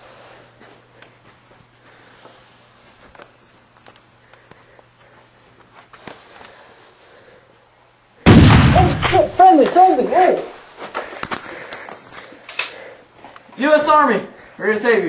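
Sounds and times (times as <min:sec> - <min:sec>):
faint steady hum: 0:00.0 - 0:15.0
soft footsteps: 0:00.5 - 0:06.6.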